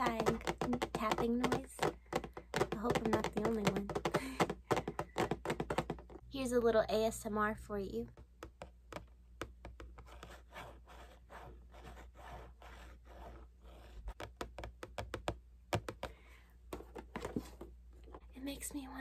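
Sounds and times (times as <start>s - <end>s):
scratching on cardboard: 0.0s - 6.0s, 9.8s - 14.4s
fingers tapping on cardboard box: 0.0s - 6.2s, 14.1s - 17.4s.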